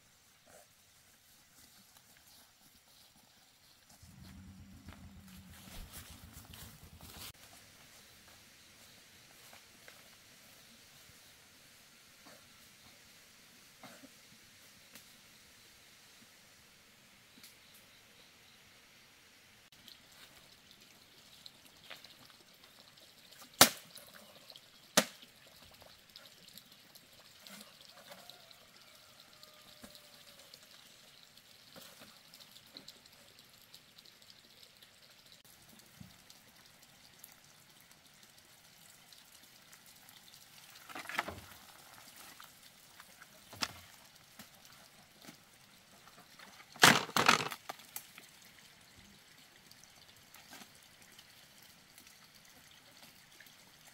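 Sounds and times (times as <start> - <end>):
water splashing and pouring: 19.7 - 53.9.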